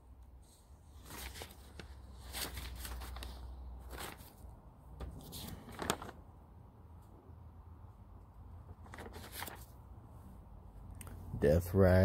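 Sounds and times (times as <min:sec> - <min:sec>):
paper pages rustling: 0:00.9 - 0:06.3, 0:08.6 - 0:09.8
soft clicks of pages turned: 0:01.0 - 0:06.2, 0:08.6 - 0:09.8, 0:10.9 - 0:11.2.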